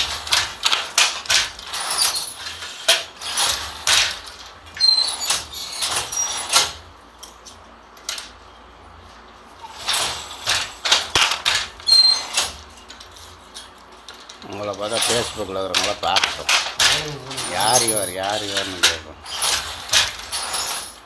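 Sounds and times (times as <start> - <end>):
wooden handloom clattering: 0.0 - 7.4, 9.6 - 21.0
short high squeaks: 4.8 - 6.7, 11.8 - 12.5.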